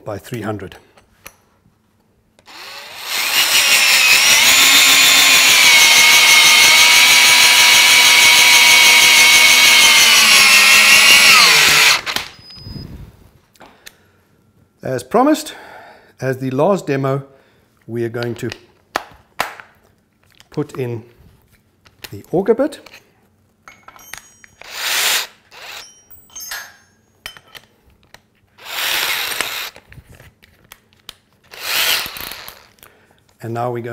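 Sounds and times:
cordless drill driving screw: 0:02.4 - 0:12.6, 0:24.6 - 0:25.9, 0:28.6 - 0:29.8, 0:31.5 - 0:32.7.

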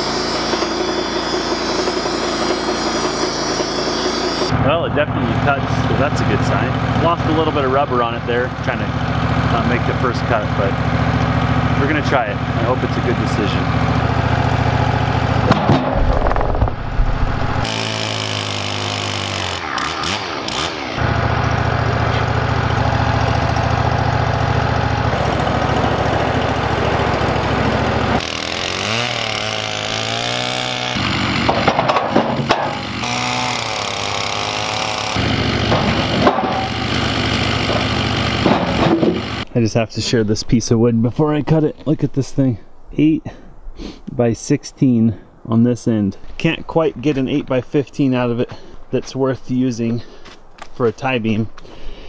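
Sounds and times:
portable bandsaw mill engine running: 0:00.0 - 0:15.8, 0:17.6 - 0:39.5.

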